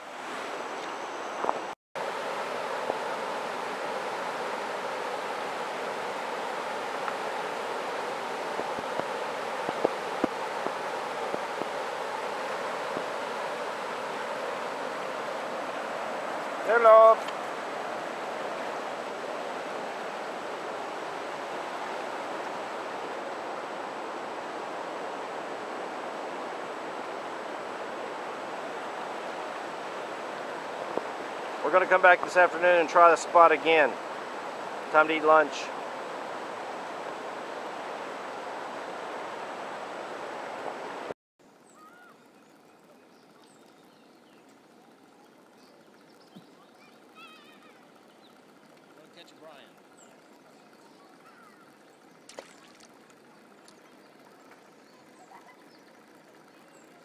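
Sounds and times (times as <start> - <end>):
whitewater rapids rushing: 0.0 - 41.1
calm river: 0.0 - 57.0
faint bird chirps: 41.6 - 48.7, 49.6 - 57.0.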